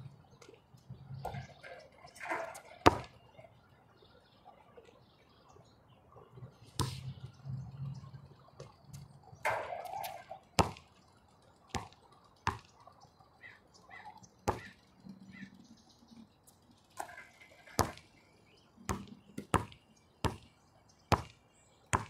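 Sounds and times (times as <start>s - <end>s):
basketball bouncing on hard court: 10.6s - 10.9s, 11.7s - 12.7s, 14.5s - 14.7s, 17.8s - 18.0s, 18.9s - 20.4s, 21.1s - 22.0s.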